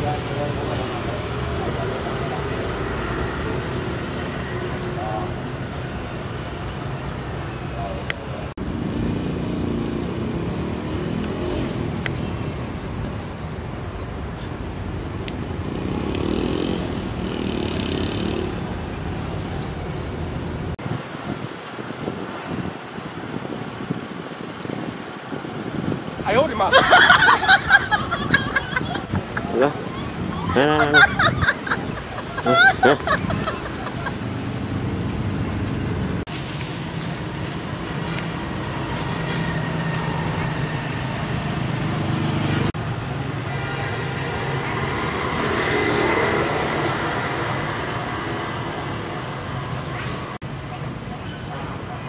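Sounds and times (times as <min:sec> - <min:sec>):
vehicle engine rumbling: 0:25.7 - 0:52.0.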